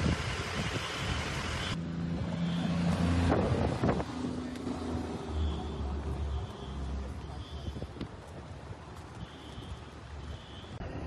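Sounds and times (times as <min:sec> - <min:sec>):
wind buffeting microphone: 0:00.0 - 0:02.3, 0:03.2 - 0:04.3.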